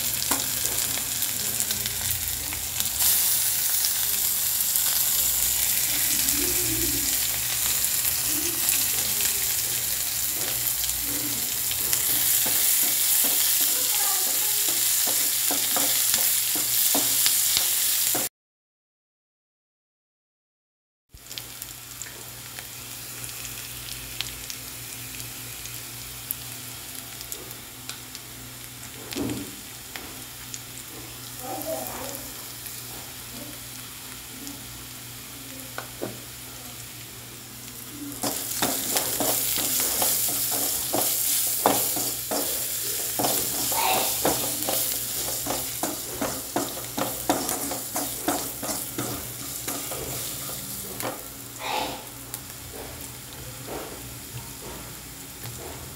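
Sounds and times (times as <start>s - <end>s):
onions sizzling in oil: 0.0s - 18.3s, 21.2s - 55.9s
spatula scraping and knocking pan: 11.8s - 18.3s, 38.2s - 51.2s.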